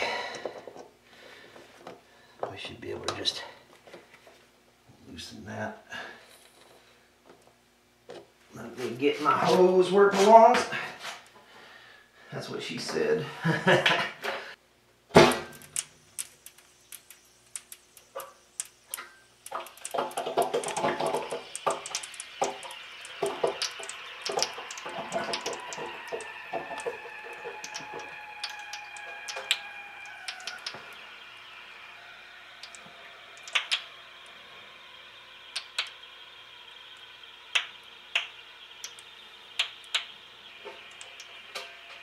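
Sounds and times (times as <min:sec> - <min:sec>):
water hissing through hose: 0:16.3 - 0:42.0.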